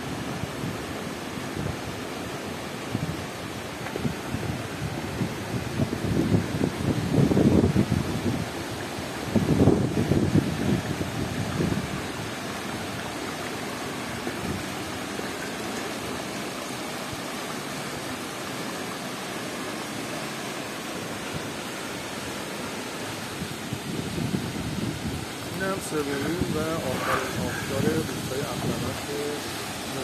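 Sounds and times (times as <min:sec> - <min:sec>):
waterfall rushing: 0:00.0 - 0:30.0
wind buffeting microphone: 0:02.8 - 0:13.1, 0:23.3 - 0:29.9.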